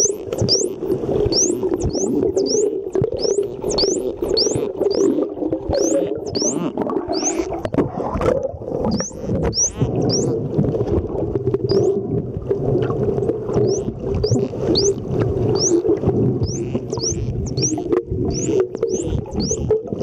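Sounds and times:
dolphins whistling underwater: 0.0 - 7.7, 8.8 - 10.4, 11.6 - 12.0, 13.5 - 20.0
dolphin clicks: 0.0 - 7.8, 13.6 - 20.0
low underwater rush: 0.0 - 20.0.

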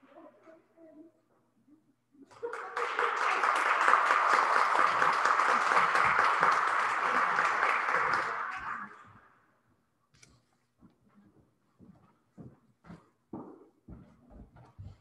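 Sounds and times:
small group applauding: 2.3 - 9.1.

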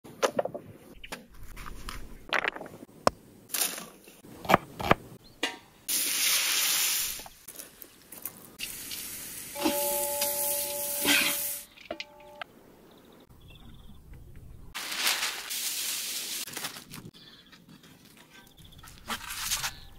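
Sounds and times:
ringing tone: 9.6 - 12.4.

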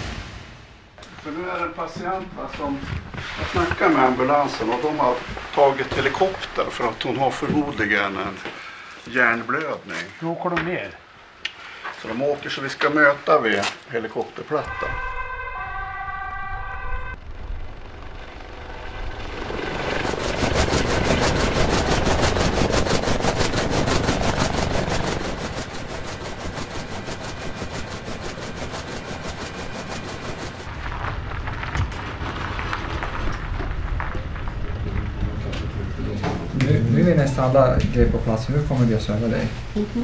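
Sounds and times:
helicopter rotor chopping: 14.7 - 39.5.

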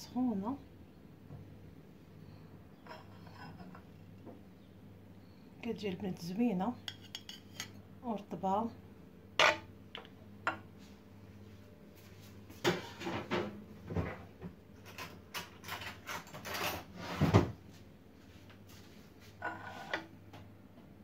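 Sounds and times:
dishes clattering on stone countertop: 2.8 - 4.4, 6.8 - 7.8, 9.4 - 10.7, 12.6 - 14.2, 14.8 - 17.5, 19.4 - 20.1.

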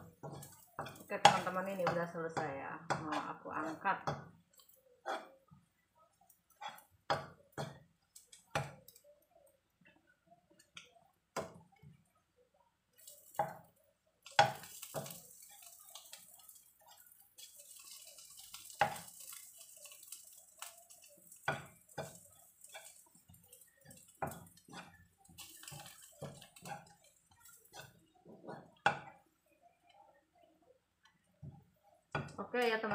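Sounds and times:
spatula scraping a wok: 0.0 - 5.5, 6.3 - 9.0, 14.2 - 29.2
oil sizzling: 0.0 - 32.9.

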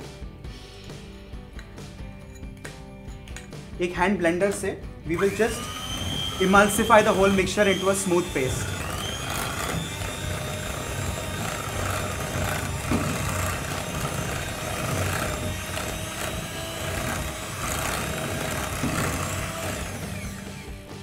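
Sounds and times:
electric hand mixer whisking: 5.1 - 21.0.

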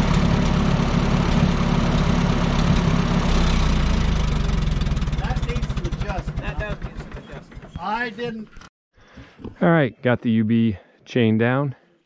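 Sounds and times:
tractor engine idling: 0.0 - 8.5.

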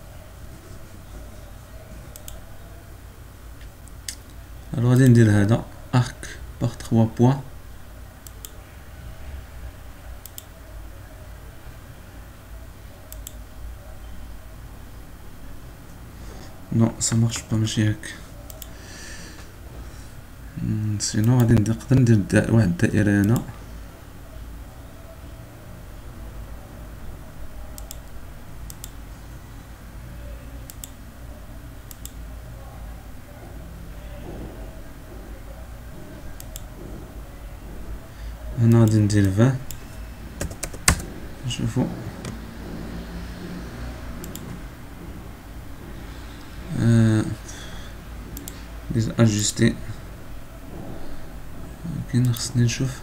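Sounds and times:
faint low hum: 0.0 - 53.0
computer mouse clicks: 2.1 - 2.4, 10.2 - 10.6, 13.1 - 13.4, 18.5 - 18.8, 27.8 - 29.0, 30.7 - 31.0, 31.9 - 32.2, 36.4 - 36.7, 44.2 - 44.6, 48.4 - 48.6.

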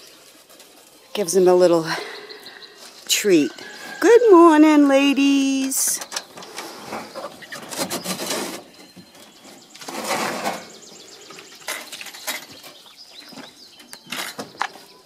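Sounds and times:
chicks chirping: 1.9 - 4.0, 5.8 - 15.0.

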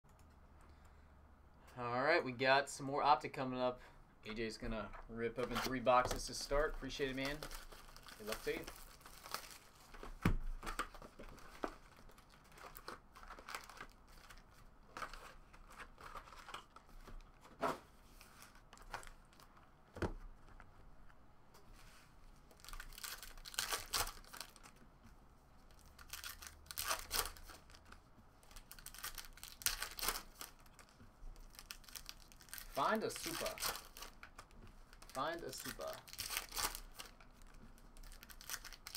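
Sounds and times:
card packs crinkling and tearing: 5.4 - 17.2, 22.6 - 24.8, 25.7 - 38.9.

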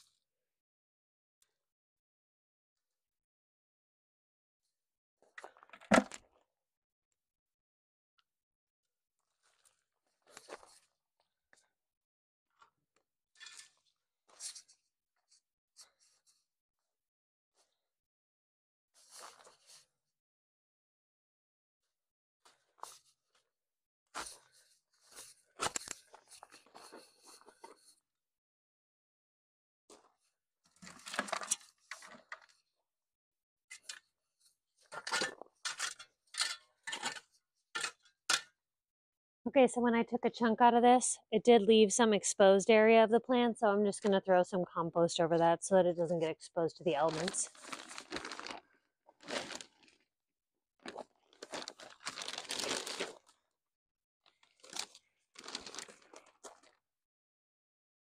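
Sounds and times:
plastic bag rustling: 47.0 - 48.6, 49.2 - 49.9, 50.8 - 53.2, 54.6 - 56.7.

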